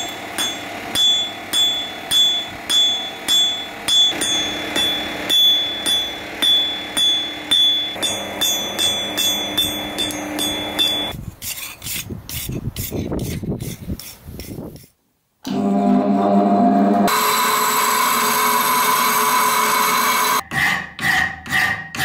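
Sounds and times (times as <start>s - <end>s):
hammer striking steel on anvil: 0.0s - 11.2s.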